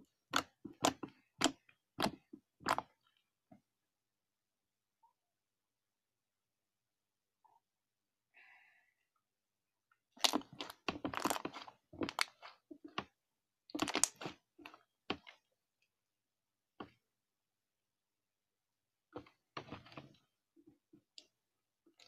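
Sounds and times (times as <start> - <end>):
slime squelching: 0.0 - 3.2, 10.1 - 15.5.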